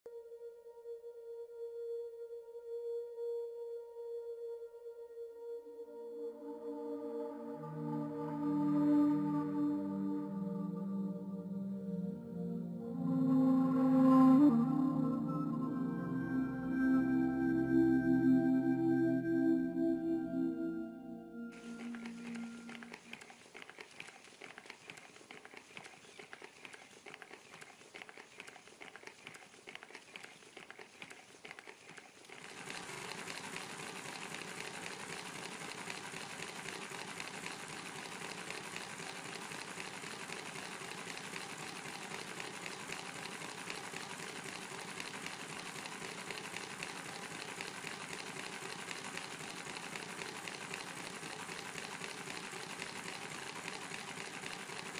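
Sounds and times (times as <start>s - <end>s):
model engine running: 21.6s - 54.9s.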